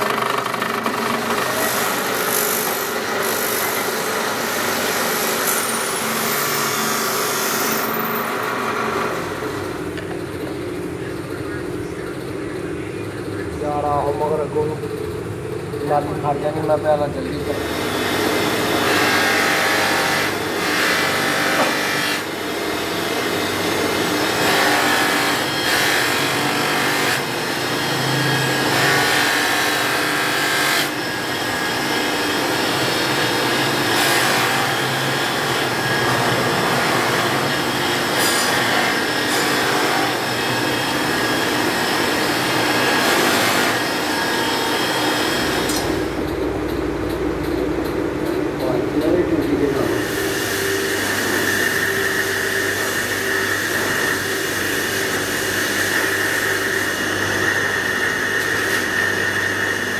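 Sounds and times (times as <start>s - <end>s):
buffing machine motor hum: 0.0s - 10.6s.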